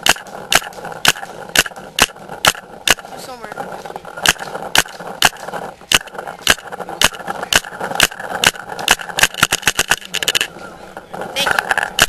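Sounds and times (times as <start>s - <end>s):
paintball marker firing shots: 0.0s - 3.1s, 4.1s - 10.5s.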